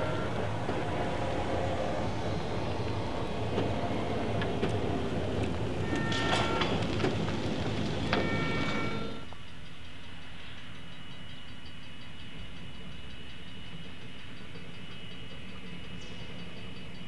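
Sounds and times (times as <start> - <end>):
high wheel squeals: 0.0 - 9.3
train rumbling on track: 0.0 - 11.3, 12.0 - 17.0.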